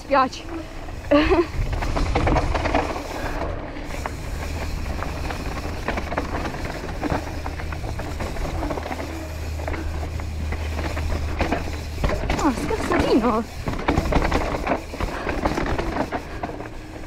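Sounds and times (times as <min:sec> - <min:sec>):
bike clicks and rattles: 0:00.0 - 0:17.0
wind rushing over microphone: 0:00.9 - 0:03.0
tyres crunching on gravel: 0:03.9 - 0:17.0.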